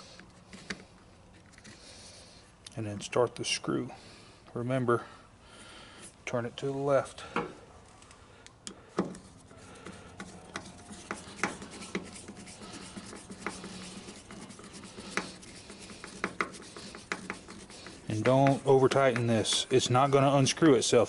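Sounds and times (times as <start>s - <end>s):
screwdriver clicking and scraping: 9.0s - 20.7s.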